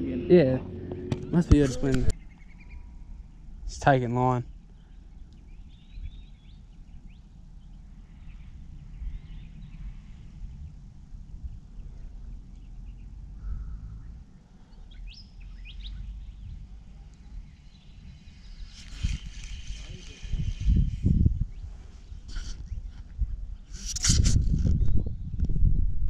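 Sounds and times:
wind rumbling on microphone: 0:00.6 - 0:26.0
faint bird chirps: 0:02.1 - 0:03.6, 0:04.4 - 0:23.1.

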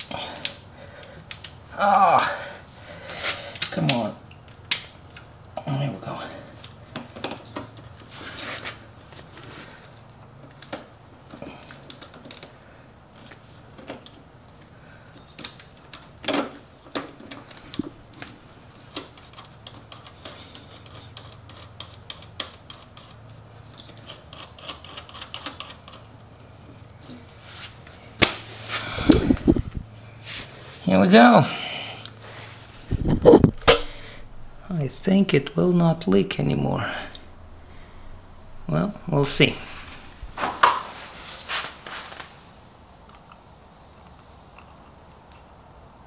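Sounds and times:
low steady hum: 0:25.8 - 0:46.0.

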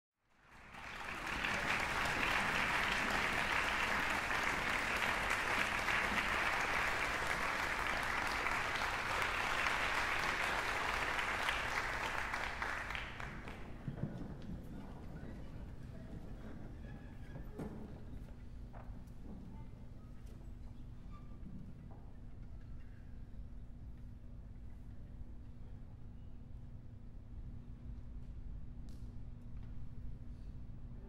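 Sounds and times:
audience applauding: 0:00.3 - 0:13.8.

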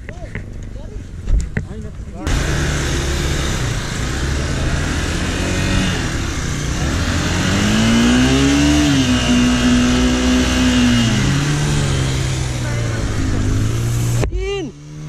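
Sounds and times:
motorcycle engine revving: 0:02.2 - 0:15.0.

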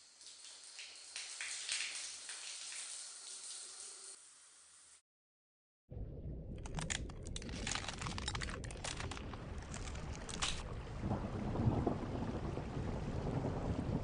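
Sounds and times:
low rumble: 0:05.9 - 0:14.0
dense crackling: 0:06.4 - 0:11.0.

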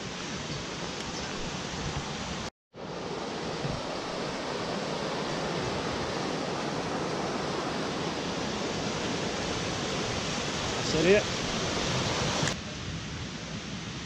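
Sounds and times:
stream rushing over rocks: 0:00.0 - 0:14.0.

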